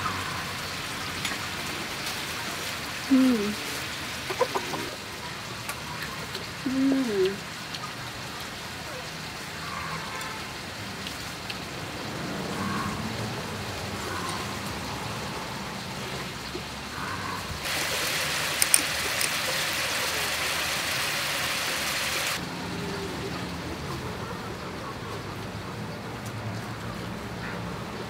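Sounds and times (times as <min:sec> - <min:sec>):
meat and vegetables sizzling: 0:17.6 - 0:22.4.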